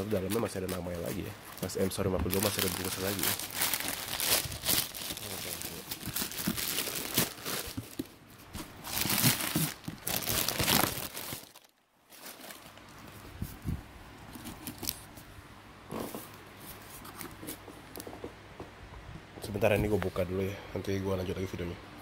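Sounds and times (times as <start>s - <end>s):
plastic tearing: 0.0s - 12.9s
plastic bag crinkling: 0.0s - 13.1s.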